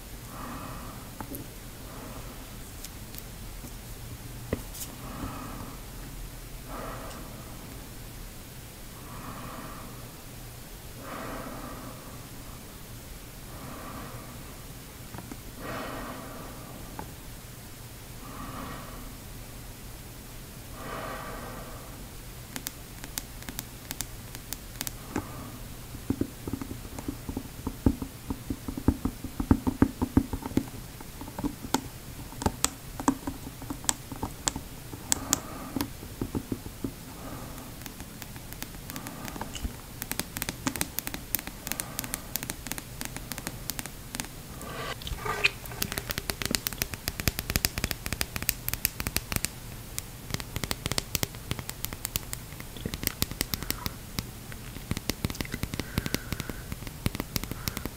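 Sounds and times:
fingernails tapping on plastic: 26.1 - 37.0, 37.6 - 44.3, 45.7 - 49.6, 50.2 - 57.9.

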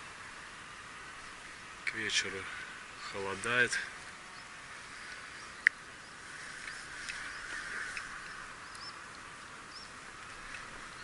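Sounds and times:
insect chorus chirring: 4.3 - 11.0.

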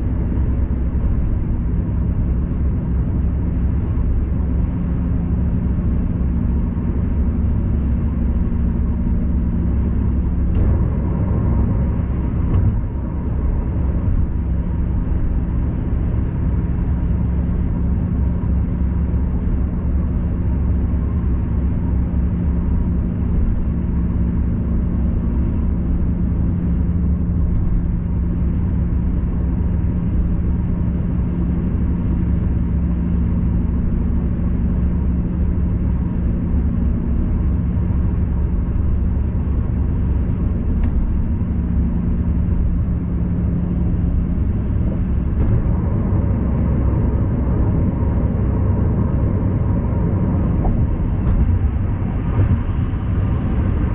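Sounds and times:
car road and engine noise: 0.0 - 53.9.

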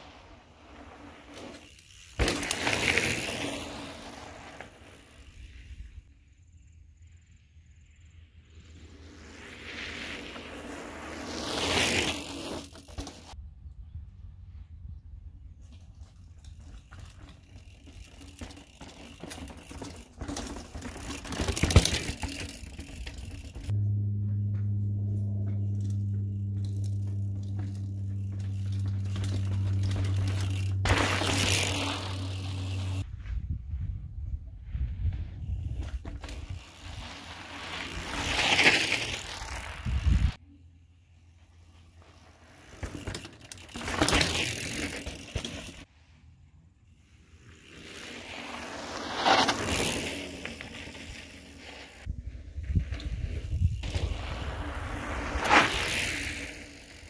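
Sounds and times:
bike tyres skidding through gravel: 0.0 - 6.0, 8.5 - 13.4, 15.6 - 33.2, 34.7 - 40.4, 41.4 - 46.2, 46.9 - 57.0
steady low hum: 23.1 - 33.0.

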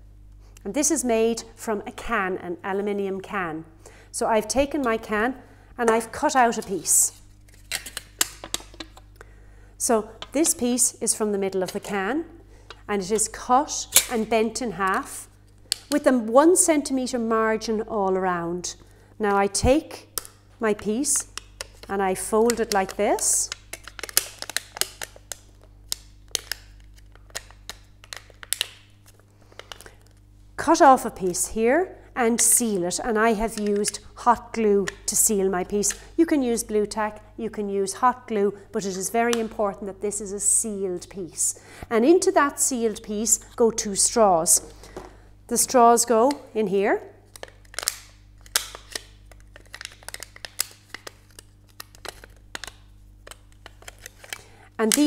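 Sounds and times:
faint steady hum: 0.0 - 55.0
aluminium sheet crinkling: 6.2 - 9.2, 21.1 - 30.3, 47.2 - 55.0
plastic straws clicking and crackling: 21.3 - 28.8, 47.3 - 55.0.

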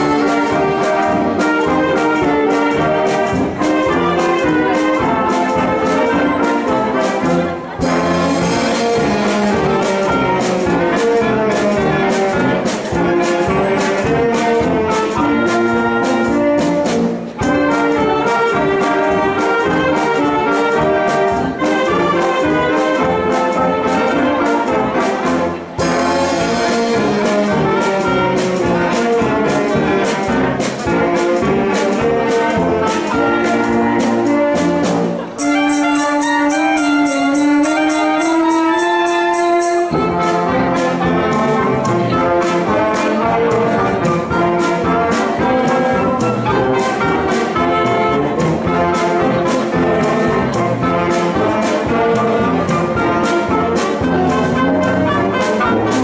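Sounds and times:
wind band playing: 0.0 - 56.0.

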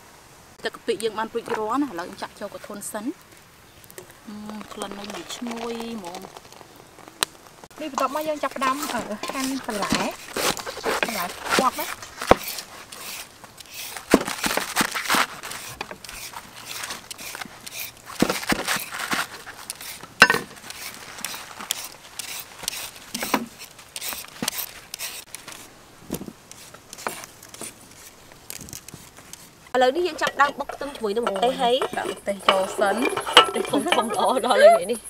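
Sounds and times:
cleaver crunching through cabbage: 4.2 - 29.6.

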